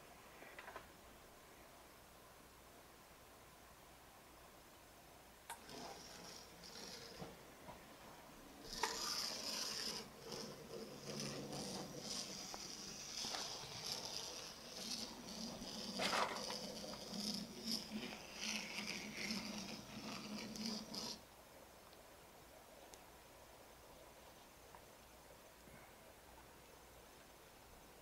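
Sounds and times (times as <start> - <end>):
model car motors whining: 5.5 - 7.4, 8.6 - 21.2.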